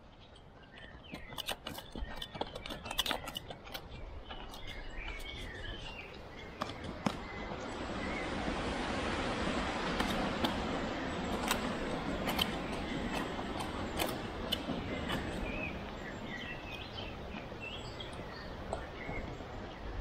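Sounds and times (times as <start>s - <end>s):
birds chirping: 0.0s - 20.0s
clicks of grit and stones: 0.2s - 7.2s
hands scraping soil: 9.0s - 19.2s.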